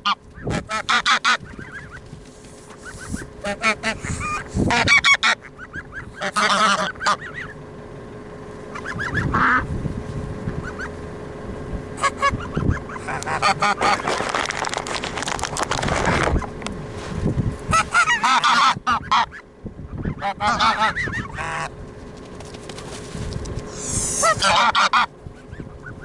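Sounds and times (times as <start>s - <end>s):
geese honking: 0.0s - 7.8s, 8.6s - 9.7s, 10.4s - 11.0s, 12.0s - 14.2s, 17.7s - 21.9s, 23.7s - 26.0s.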